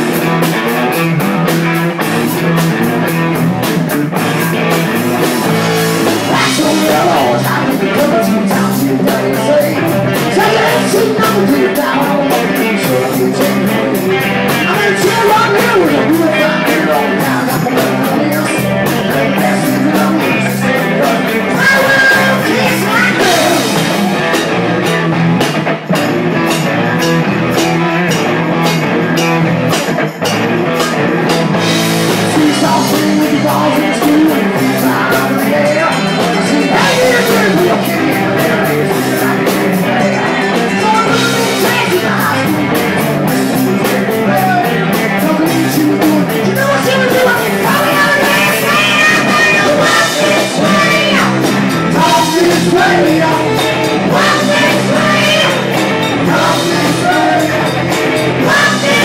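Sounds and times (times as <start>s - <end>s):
drum kit: 0.0s - 59.0s
electric guitar: 0.0s - 59.0s.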